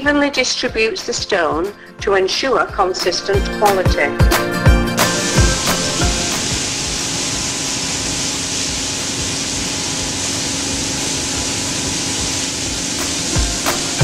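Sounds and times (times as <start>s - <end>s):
low conveyor hum: 5.0s - 14.0s.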